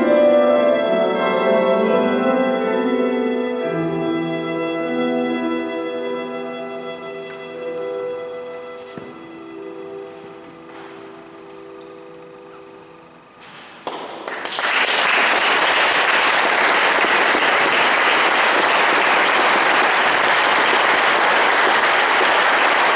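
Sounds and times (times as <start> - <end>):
violin and piano note: 0.0 - 12.7
audience applause: 13.9 - 22.9.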